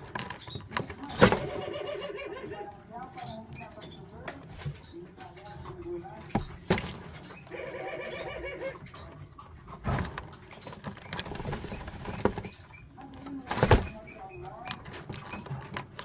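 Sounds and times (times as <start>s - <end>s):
dove cooing: 1.0s - 2.9s, 7.5s - 9.2s.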